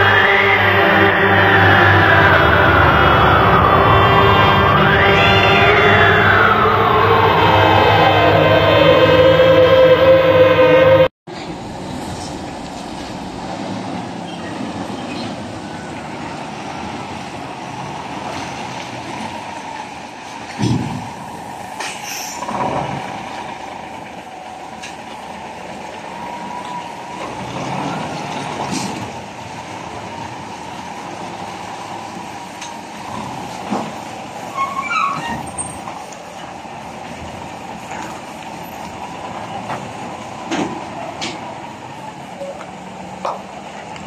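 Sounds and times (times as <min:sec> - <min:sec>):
short high squeals: 0:00.0 - 0:11.1, 0:34.5 - 0:35.9
diesel truck engine running: 0:00.0 - 0:34.6.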